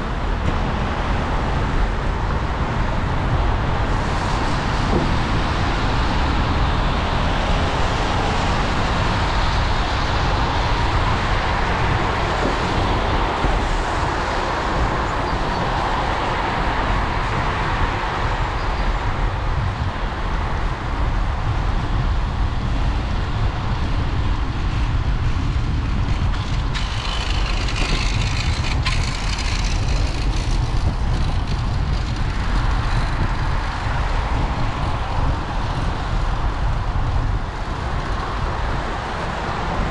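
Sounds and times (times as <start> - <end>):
wind rumble on microphone: 0.0 - 39.9
car traffic passing: 22.4 - 39.9.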